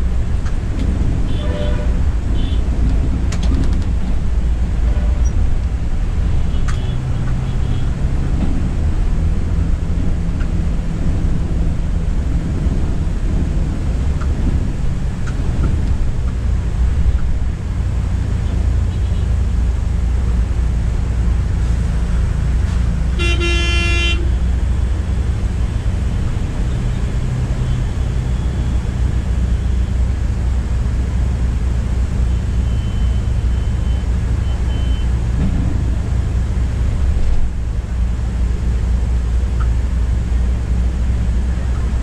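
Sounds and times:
bus diesel engine droning: 0.0s - 42.0s
vehicle horn: 1.3s - 2.6s, 23.1s - 24.4s.

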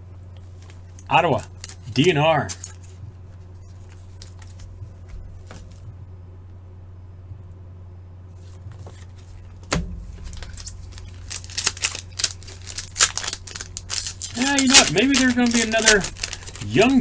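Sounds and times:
low steady hum: 0.0s - 17.0s
wrapper crinkling and tearing: 0.5s - 3.0s, 3.8s - 4.7s, 10.1s - 17.0s
handling plastic card holders: 8.4s - 17.0s.

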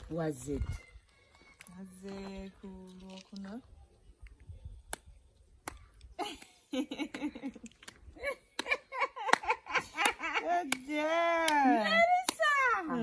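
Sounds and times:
hand claps: 4.9s - 12.6s
women laughing and exclaiming: 6.1s - 13.0s.

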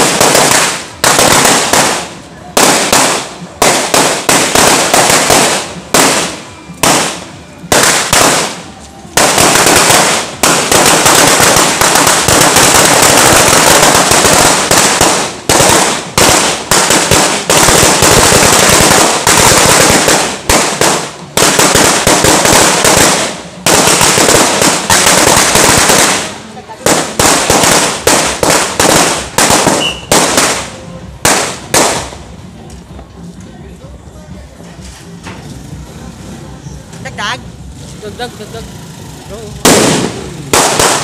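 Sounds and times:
firecrackers crackling: 0.0s - 36.0s, 36.7s - 41.0s.

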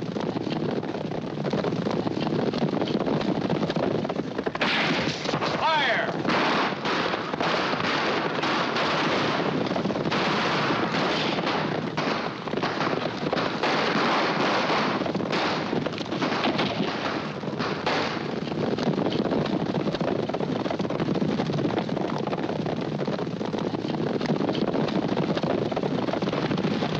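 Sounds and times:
galloping horse hoofbeats: 0.0s - 26.9s
gunshots: 1.6s - 20.8s.

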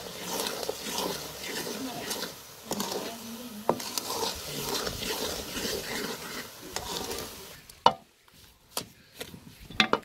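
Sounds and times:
wooden spatula scraping pot: 0.0s - 7.6s
thick mixture sizzling: 0.0s - 9.7s.

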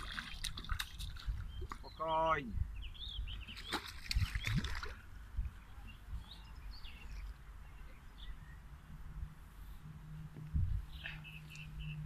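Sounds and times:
fish splashing at water surface: 0.0s - 1.4s, 3.6s - 5.0s
small birds chirping: 0.0s - 9.1s, 10.7s - 12.0s.

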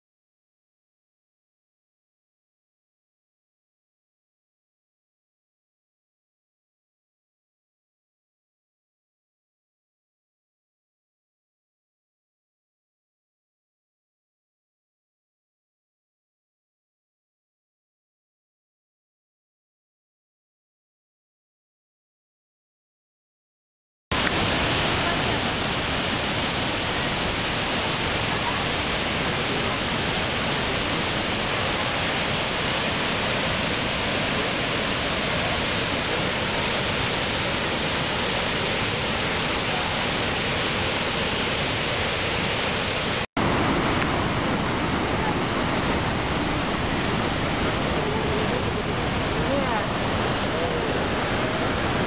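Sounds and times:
waterfall rushing: 24.1s - 52.0s.

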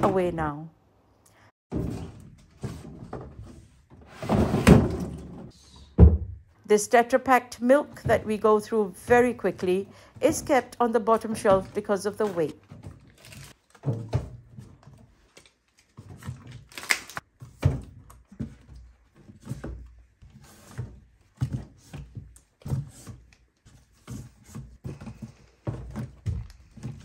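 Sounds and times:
cartons thunking on shelf: 1.7s - 6.4s.

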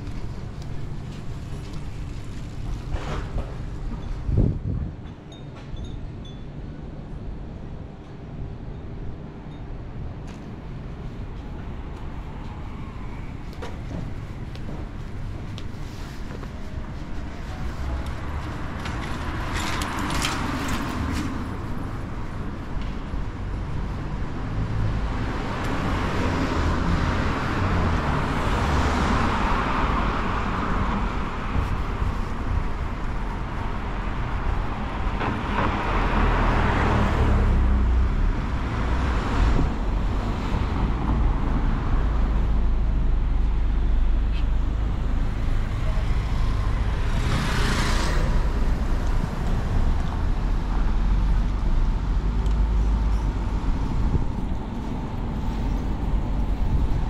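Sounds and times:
steady low traffic rumble: 0.0s - 57.0s
cars passing close by: 17.6s - 57.0s.

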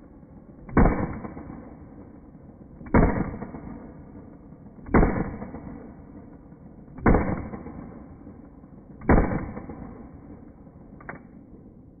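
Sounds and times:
pistol shots with echo: 0.7s - 2.2s, 2.8s - 10.4s.

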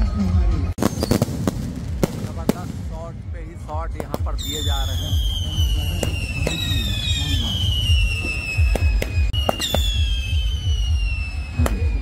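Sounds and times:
firework bangs: 0.8s - 12.0s
falling whistling tone: 4.4s - 12.0s.

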